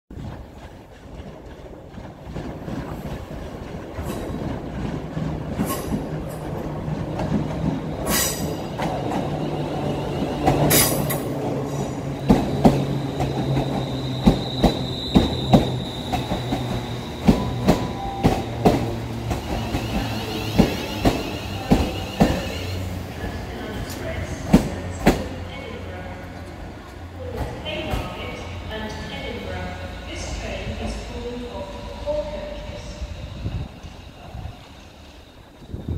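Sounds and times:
electric train hum: 0.1s - 35.9s
high wheel squeals: 12.2s - 18.5s, 19.3s - 23.0s.

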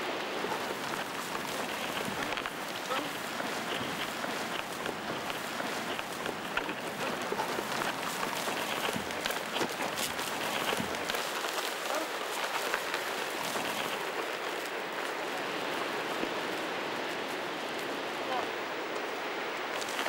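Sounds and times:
dry grass crackling and rustling: 0.0s - 20.0s.

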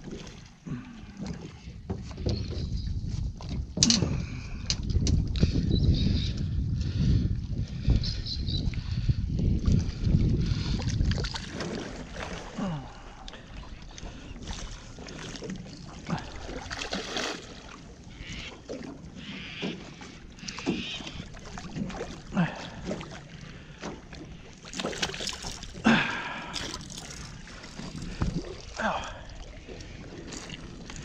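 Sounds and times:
fish splashing in water: 16.2s - 19.8s, 24.6s - 27.3s.

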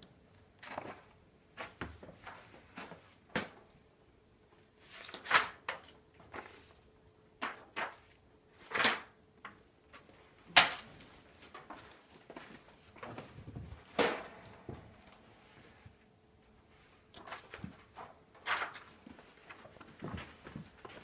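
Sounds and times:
handling rustles and knocks: 7.4s - 21.0s.

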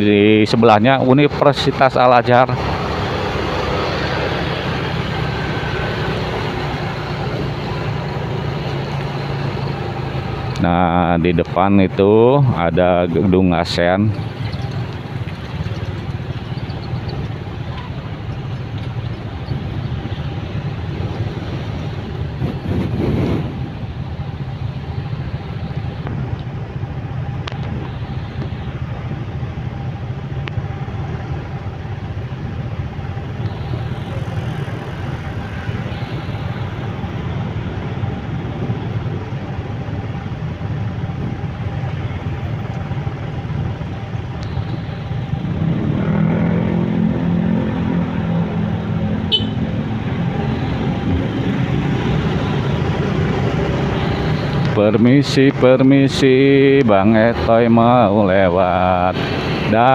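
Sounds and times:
motorcycle and car engines idling: 0.0s - 59.9s
engine revving: 1.1s - 10.6s, 44.4s - 59.9s.

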